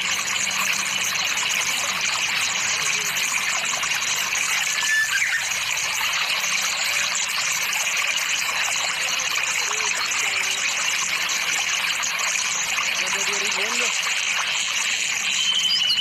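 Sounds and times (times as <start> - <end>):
high bird chirp: 4.3 - 6.3, 15.2 - 16.0.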